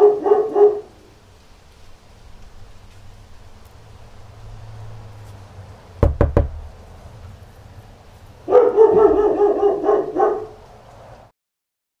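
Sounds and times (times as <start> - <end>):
dog barking: 0.0 - 1.0, 8.5 - 10.6.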